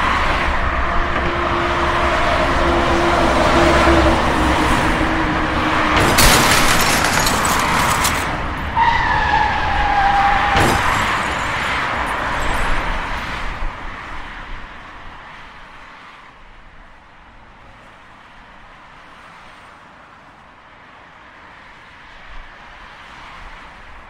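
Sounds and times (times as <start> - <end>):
car crash: 3.6 - 13.7
rattling debris: 5.9 - 8.8, 10.5 - 13.3.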